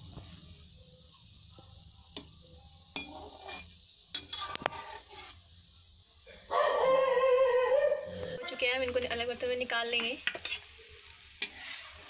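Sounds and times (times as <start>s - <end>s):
dough deep-frying in oil: 0.0s - 12.0s.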